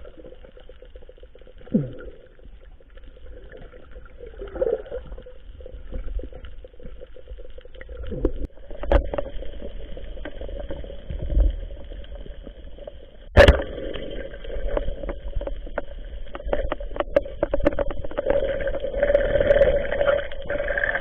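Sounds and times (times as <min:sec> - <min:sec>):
clicks and crackling: 0:00.0 - 0:21.0
underwater hum: 0:00.0 - 0:21.0.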